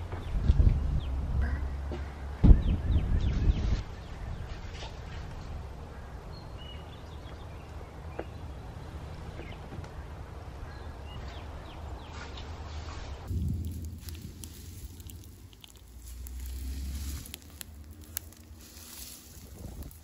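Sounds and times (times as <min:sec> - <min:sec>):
wind rumbling on microphone: 0:00.0 - 0:01.5, 0:02.4 - 0:05.8, 0:13.0 - 0:20.0.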